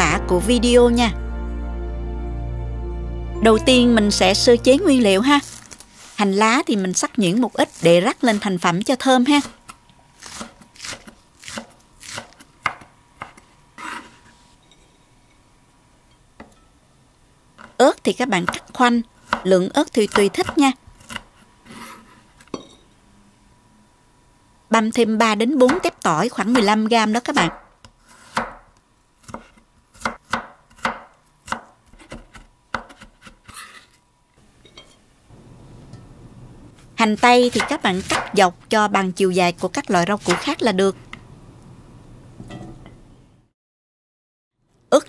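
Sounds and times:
knife chopping on wooden board: 10.3 - 13.4, 27.4 - 33.8, 37.4 - 38.4
knife blade scraping board: 21.0 - 22.3, 31.9 - 34.0.

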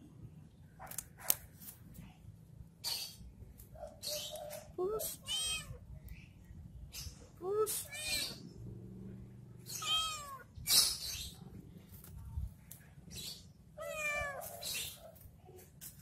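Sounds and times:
cat meowing: 5.2 - 5.8, 7.8 - 8.4, 9.7 - 10.5, 13.8 - 14.6.

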